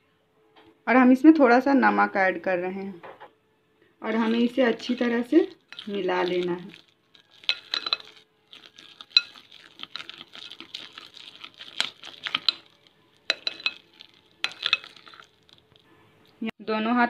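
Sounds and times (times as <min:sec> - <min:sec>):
batter squelching in a bowl: 0:04.1 - 0:15.9.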